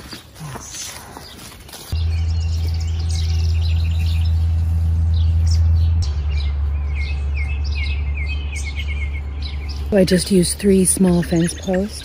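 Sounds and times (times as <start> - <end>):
small birds chirping: 0.0 - 12.0
loud steady low hum: 2.0 - 11.6.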